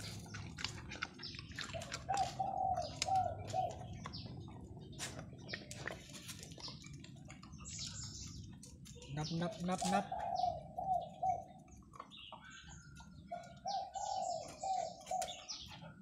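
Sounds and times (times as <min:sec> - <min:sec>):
small birds chirping: 0:00.0 - 0:16.0
dove cooing: 0:01.7 - 0:04.2, 0:09.5 - 0:16.0.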